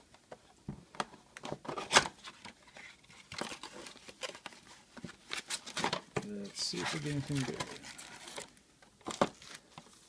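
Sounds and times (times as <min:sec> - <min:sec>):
cellophane crinkling: 0:02.8 - 0:09.8.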